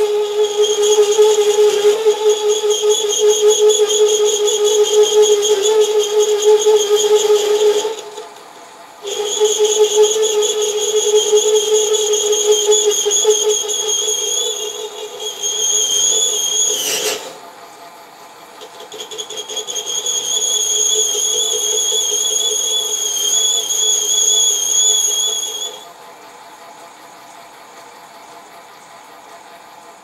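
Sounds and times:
lathe tool scrape: 0:00.0 - 0:08.4, 0:09.0 - 0:17.4, 0:18.6 - 0:25.8
lathe running: 0:00.0 - 0:17.4
lathe tool squealing chatter: 0:00.0 - 0:17.4, 0:18.5 - 0:25.9.

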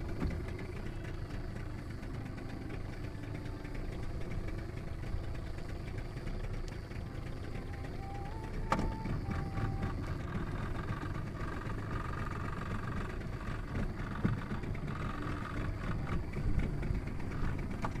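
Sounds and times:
boat engine idling: 0:00.0 - 0:18.0.

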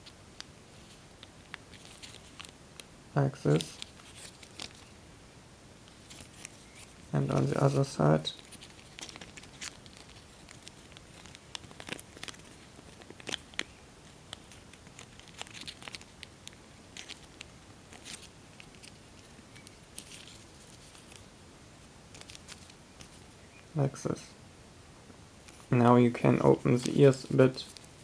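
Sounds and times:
foil crinkling: 0:00.7 - 0:02.9, 0:03.5 - 0:05.0, 0:08.3 - 0:21.3, 0:22.1 - 0:23.2.

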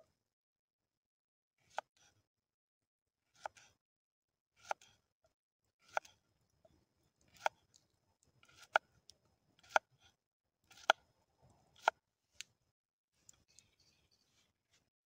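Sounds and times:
knife chopping on cutting board: 0:09.6 - 0:09.9, 0:10.7 - 0:11.0.

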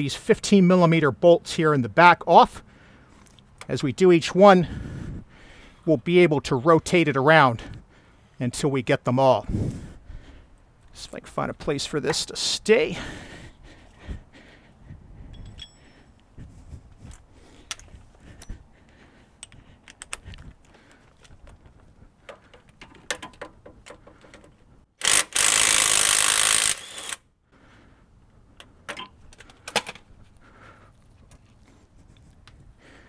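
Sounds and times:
metallic clinks of tools: 0:15.3 - 0:16.2
impact wrench bursts: 0:25.0 - 0:27.2.

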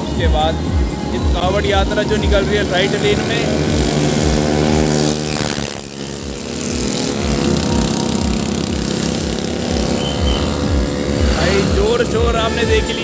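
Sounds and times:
highway traffic passing: 0:00.0 - 0:13.0
motorcycle passing by: 0:00.0 - 0:13.0.

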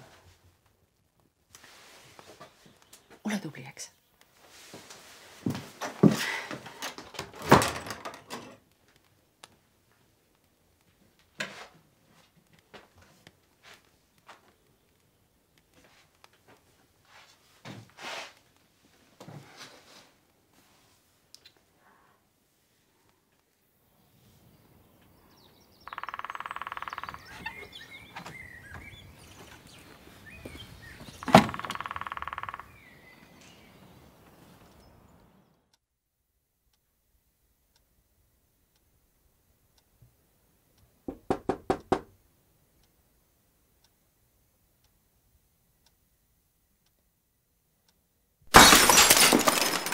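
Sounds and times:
faint knocks and rustles: 0:00.0 - 0:03.2, 0:04.2 - 0:10.0, 0:10.8 - 0:14.6
wooden door shutting: 0:06.7 - 0:08.6, 0:31.2 - 0:31.7
birds chirping: 0:23.8 - 0:35.6
knock on door: 0:41.1 - 0:42.1.

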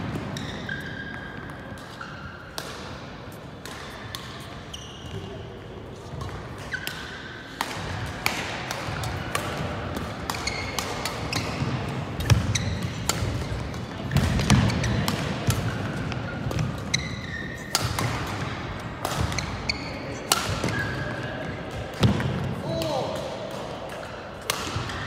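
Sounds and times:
racket hitting shuttlecock: 0:00.0 - 0:05.2, 0:06.1 - 0:25.0
shoes squeaking on court: 0:00.1 - 0:02.6, 0:04.2 - 0:05.4, 0:06.0 - 0:07.3, 0:10.3 - 0:18.1, 0:19.1 - 0:21.5.

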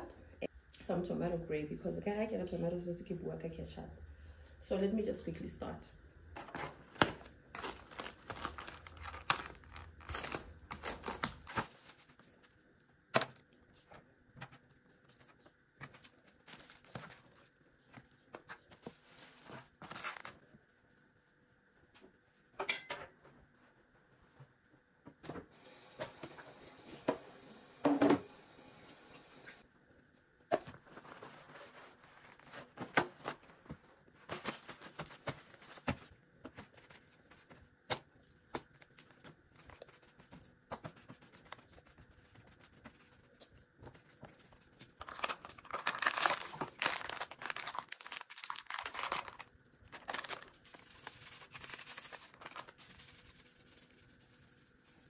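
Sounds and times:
plastic packaging crinkling: 0:06.4 - 0:12.6, 0:43.9 - 0:55.0.

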